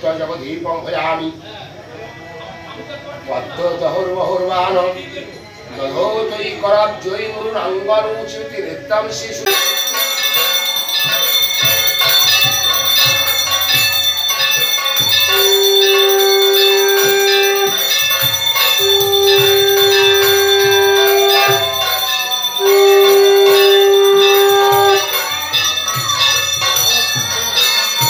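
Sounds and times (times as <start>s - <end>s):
hand bell ringing rapidly: 9.5s - 28.0s
conch shell blown: 11.7s - 27.5s.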